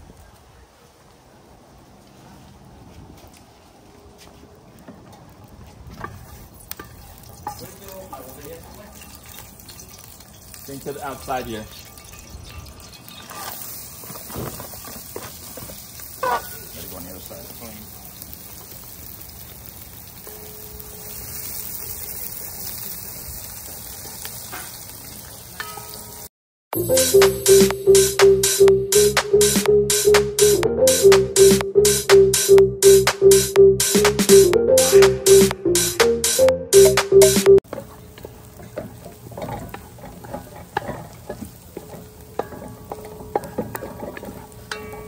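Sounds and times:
onions sizzling in hot oil: 6.2s - 27.0s, 37.6s - 45.0s
electronic dance music: 26.8s - 37.6s.

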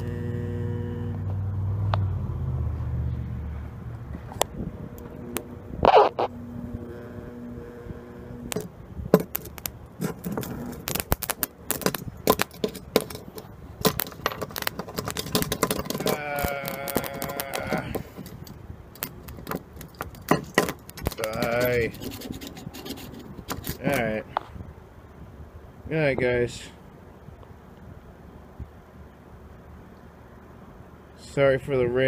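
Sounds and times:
transformer humming: 0.0s - 2.4s, 3.3s - 24.3s
metal arcing and crackling: 4.3s - 24.2s.

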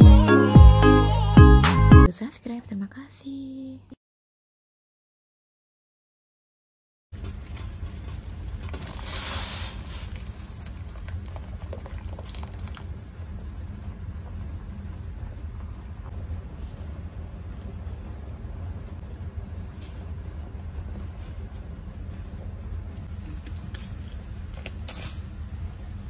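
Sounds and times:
broth boiling and bubbling: 7.2s - 19.4s, 22.5s - 26.0s.

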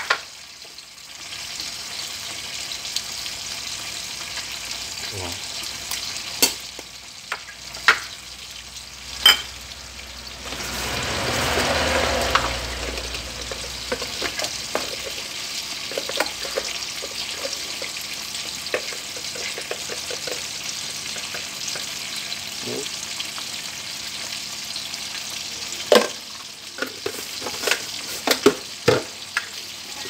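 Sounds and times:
broth boiling and bubbling: 7.2s - 24.4s.

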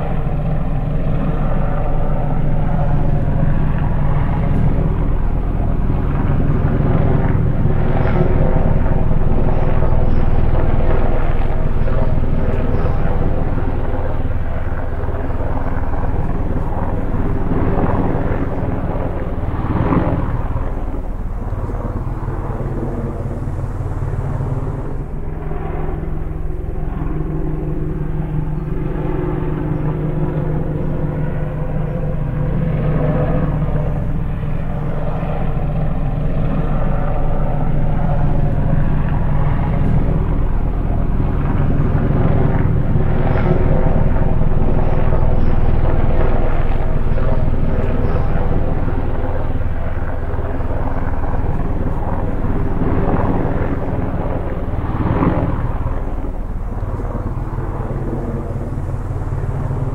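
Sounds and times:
drone motors buzzing: 19.5s - 26.3s.

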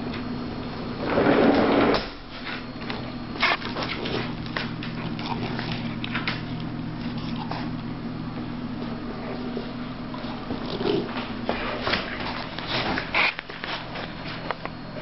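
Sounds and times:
dogs scuffling: 2.4s - 7.8s, 8.8s - 14.6s
paws and nails clicking on floor: 2.4s - 7.9s, 8.8s - 14.8s.

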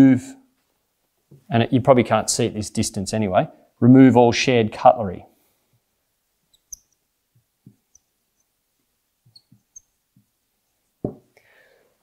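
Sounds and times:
marker squeaking: 6.5s - 8.6s, 9.2s - 10.9s.

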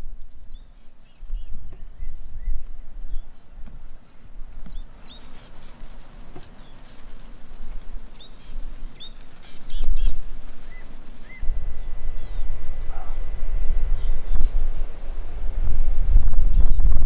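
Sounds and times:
birds chirping: 0.0s - 17.0s
low rumble: 7.2s - 17.0s.

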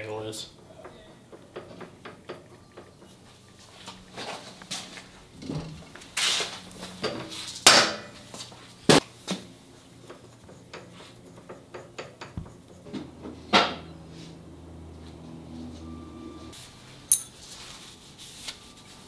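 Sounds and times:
low steady hum: 12.2s - 17.5s
metal tools clanking: 17.1s - 17.4s.

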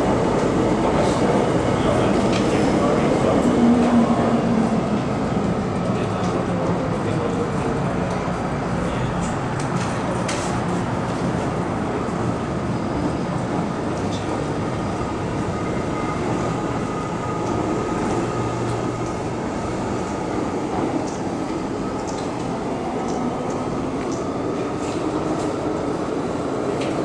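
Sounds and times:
train rumbling through station: 0.0s - 27.0s.

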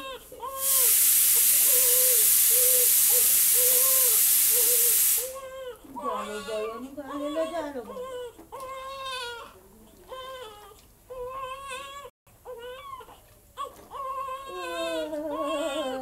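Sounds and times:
newborn baby crying: 0.0s - 16.0s.

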